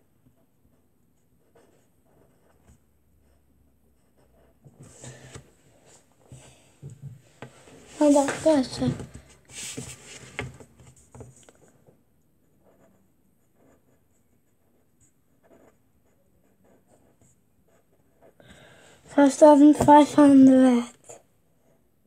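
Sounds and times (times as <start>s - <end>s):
pen scratching on paper: 0.4s - 5.4s, 7.9s - 8.9s, 12.4s - 18.4s.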